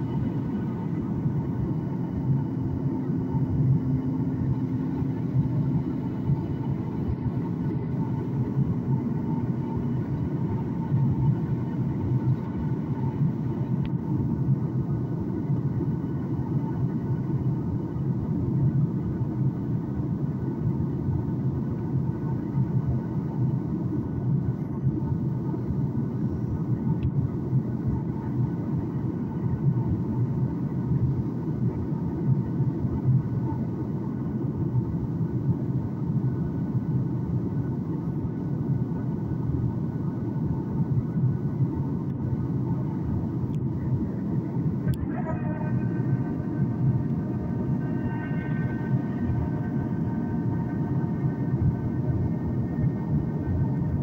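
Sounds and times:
airplane cabin engine rumble: 0:00.0 - 0:54.0
faint steady hum: 0:00.0 - 0:54.0
faint steady high tones: 0:43.9 - 0:54.0.

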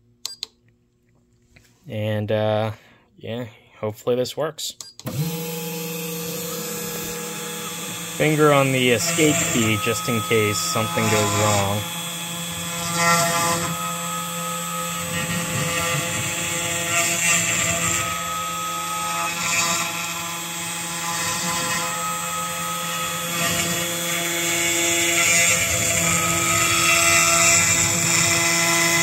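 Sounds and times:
router spindle hum: 0:05.0 - 0:29.0
cutting hiss of end mill: 0:06.7 - 0:12.2.

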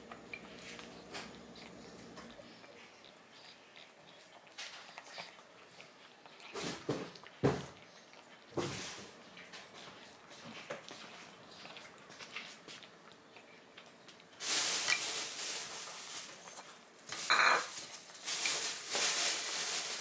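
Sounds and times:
cat chewing: 0:00.0 - 0:14.4
scraping and rustling: 0:14.4 - 0:20.0.

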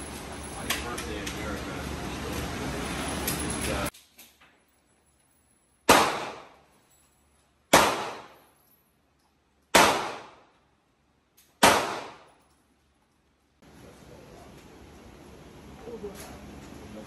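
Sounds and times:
echoing gunshots indoors: 0:05.9 - 0:06.7, 0:07.7 - 0:08.5, 0:09.7 - 0:10.6, 0:11.6 - 0:12.4.

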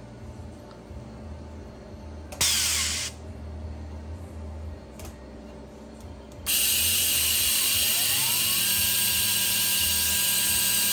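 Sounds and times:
motor spindle whine: 0:06.5 - 0:10.9.

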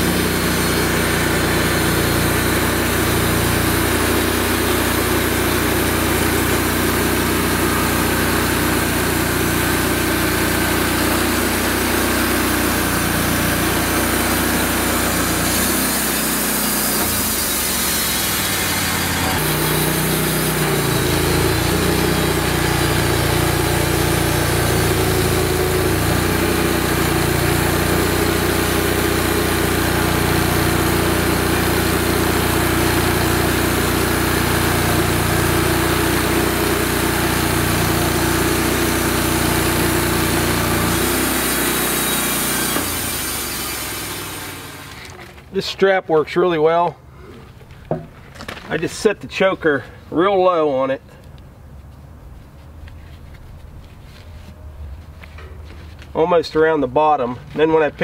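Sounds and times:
band blade cutting log: 0:00.0 - 0:45.4
band sawmill engine running: 0:00.0 - 0:51.3, 0:52.6 - 0:58.0.

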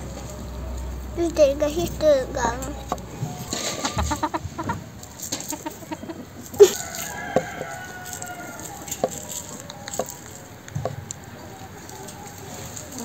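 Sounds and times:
rooster crowing: 0:05.8 - 0:13.0.

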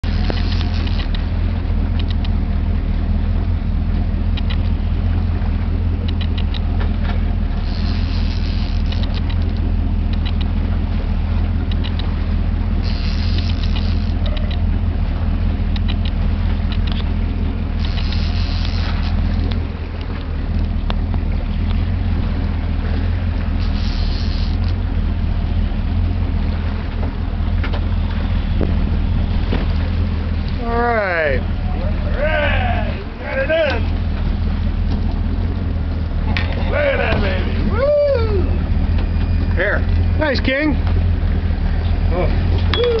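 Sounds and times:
faint clicks: 0:00.0 - 0:01.3, 0:01.9 - 0:02.4, 0:04.3 - 0:04.8, 0:06.0 - 0:10.6, 0:11.6 - 0:12.1, 0:12.8 - 0:14.7, 0:15.7 - 0:17.1, 0:17.8 - 0:21.8
boat engine droning: 0:00.0 - 0:43.0
water noise: 0:00.0 - 0:43.0
wind: 0:00.0 - 0:43.0.

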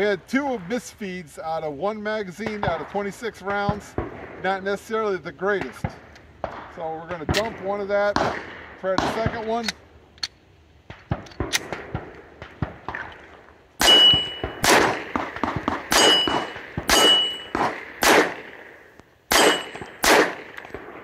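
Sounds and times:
pistol shots: 0:05.6 - 0:09.8, 0:10.9 - 0:21.0
bullets ringing on steel targets: 0:13.8 - 0:14.9, 0:15.9 - 0:17.8, 0:19.3 - 0:20.4.

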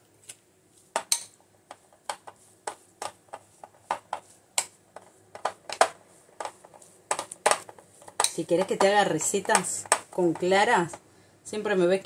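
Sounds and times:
spoon stirring dough in bowl: 0:00.2 - 0:11.1.

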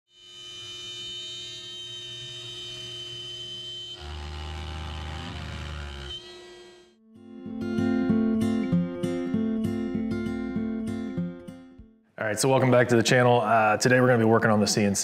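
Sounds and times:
router high whine: 0:00.2 - 0:07.0
bit cutting through wood: 0:04.0 - 0:07.0.

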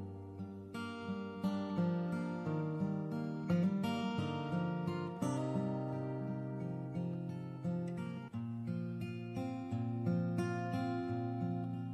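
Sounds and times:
acoustic guitar chords: 0:00.0 - 0:11.9.

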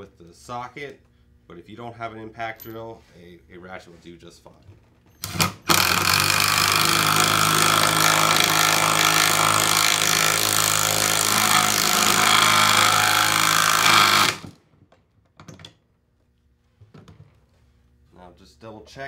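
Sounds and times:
impact driver hammering bolt into wood: 0:05.2 - 0:14.6.

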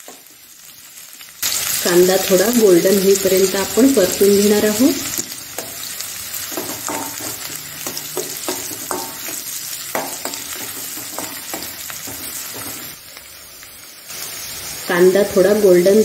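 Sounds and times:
onion sizzling in hot oil: 0:00.0 - 0:16.0
spoon clinking and scraping pan: 0:05.5 - 0:13.0.

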